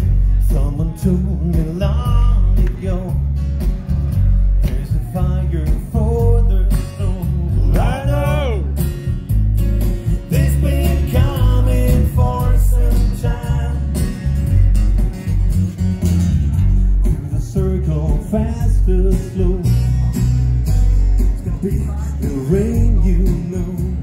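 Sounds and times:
man singing: 0.0 - 3.4, 4.6 - 8.9, 10.1 - 14.6, 17.0 - 20.3, 21.2 - 24.0
acoustic guitar: 0.0 - 24.0.

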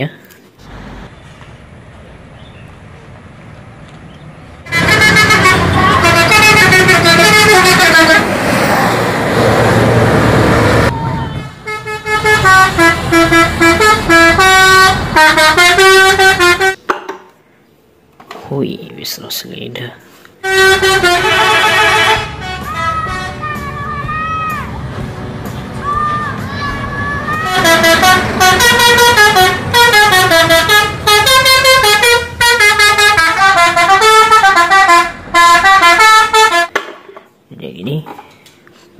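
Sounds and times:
bus engine noise: 0.3 - 16.7, 20.6 - 36.7
musical bus horn tune: 4.7 - 8.4, 11.2 - 16.8, 20.4 - 25.3, 27.4 - 36.8.

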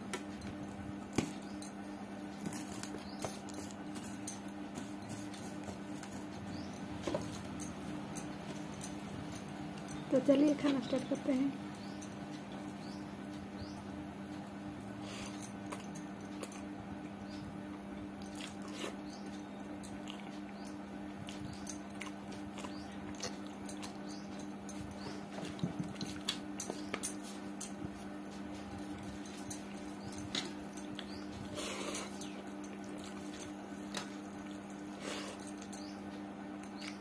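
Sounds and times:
wet chewing mouth sounds: 19.9 - 20.6, 21.3 - 24.0.

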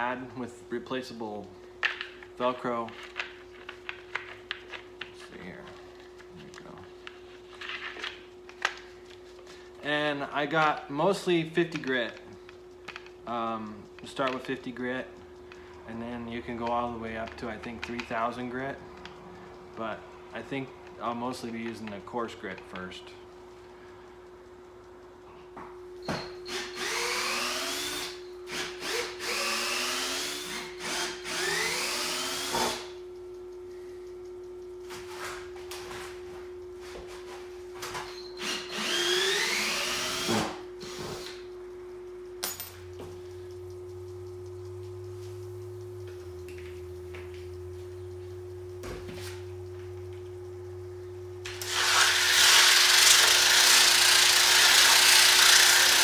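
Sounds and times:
cordless drill whining: 26.5 - 32.9, 38.4 - 41.4, 51.5 - 56.0.

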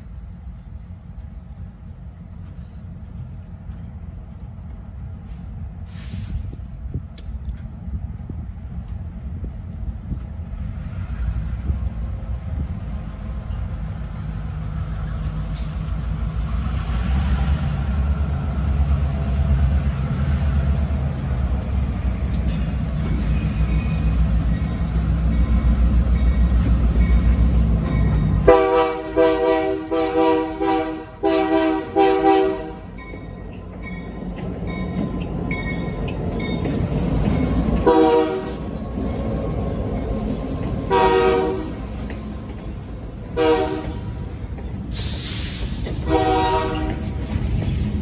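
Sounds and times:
locomotive engine rumble: 0.0 - 48.0
locomotive air horn blasts: 28.4 - 32.9, 37.8 - 38.6, 40.9 - 41.8, 43.4 - 44.1, 46.0 - 47.1.

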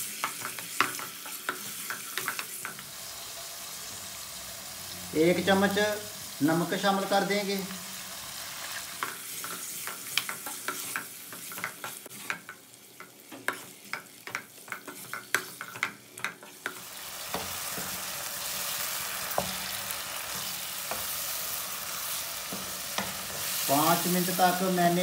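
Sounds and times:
meat sizzling in oil: 0.0 - 25.0
wooden spoon knocking on pan: 19.2 - 21.2.

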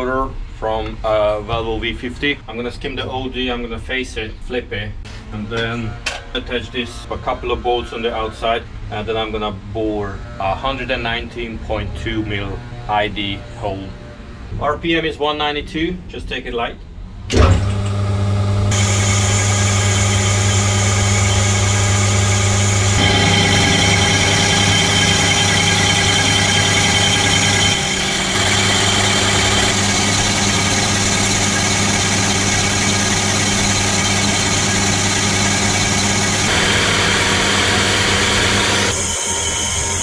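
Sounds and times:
lathe gear hum: 17.4 - 40.0.

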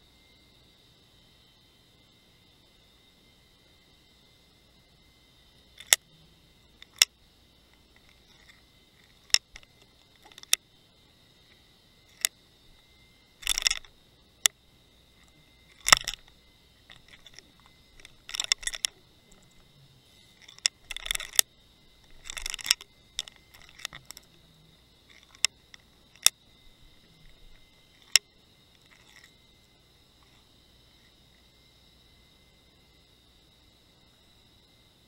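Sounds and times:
faint high whine: 0.0 - 35.0
sharp clicks: 5.8 - 6.1, 6.8 - 7.1, 7.7 - 10.6, 13.4 - 14.6, 15.2 - 19.7, 20.4 - 24.4, 25.1 - 26.4.

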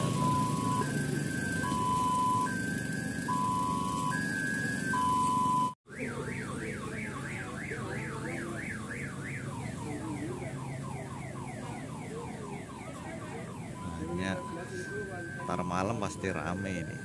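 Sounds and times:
electronic two-tone beep: 0.0 - 2.6, 3.3 - 5.8, 13.7 - 17.0
electronic siren warble: 0.0 - 17.0.

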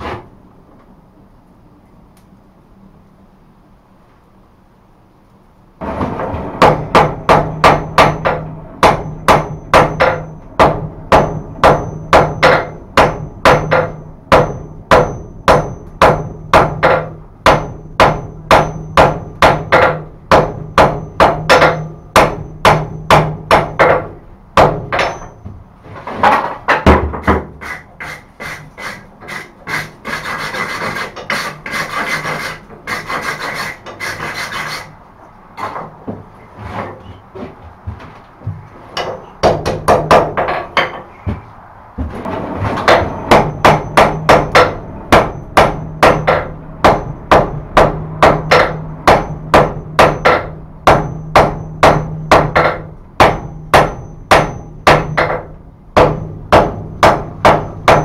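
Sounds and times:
dense scraping noise: 5.8 - 7.3, 25.8 - 26.6, 36.3 - 37.6, 41.2 - 43.3
hammer ringing on anvil: 6.6 - 23.7, 24.6 - 25.4, 43.3 - 55.4, 56.0 - 58.0.

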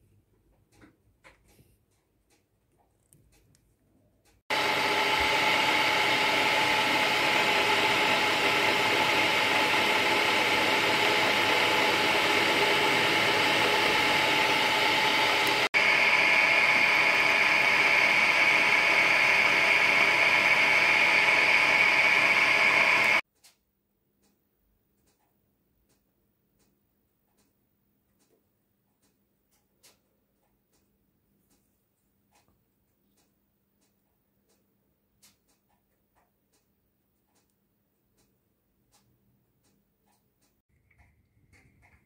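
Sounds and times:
milling machine whining: 4.5 - 23.2.

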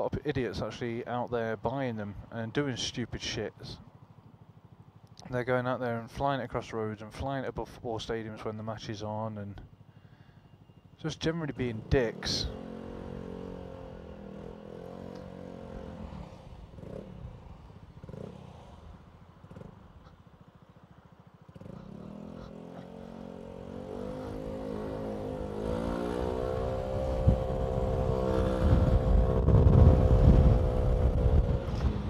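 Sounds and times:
motorcycle engine: 3.8 - 5.3, 9.6 - 32.0
wind on microphone: 26.4 - 32.0.

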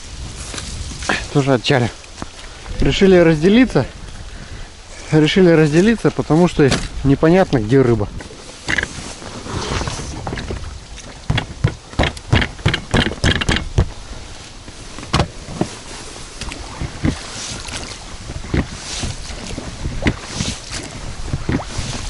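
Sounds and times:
oar strokes splashing water: 0.0 - 22.0
wind rumble on microphone: 0.0 - 22.0
oars knocking against boat: 6.0 - 9.1, 10.0 - 22.0.

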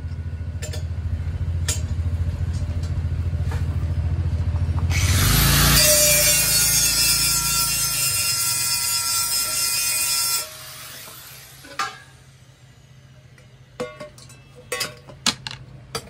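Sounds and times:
angle grinder grinding metal: 4.9 - 12.1.

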